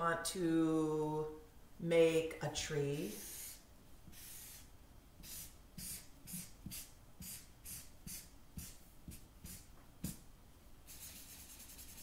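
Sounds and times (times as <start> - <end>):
marker drawing on paper: 3.0 - 10.2, 10.9 - 12.0.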